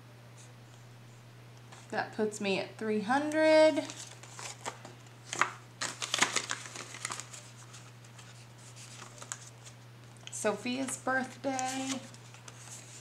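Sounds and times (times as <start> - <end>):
steady low hum: 0.0 - 13.0
paper rustling and crinkling: 3.7 - 13.0.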